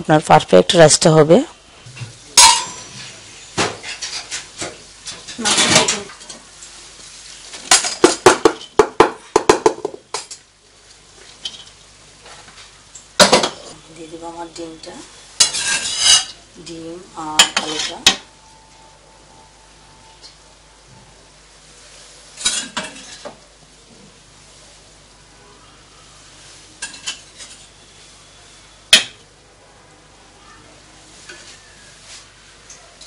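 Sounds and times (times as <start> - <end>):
metal spoon scraping a pot: 15.4 - 16.4.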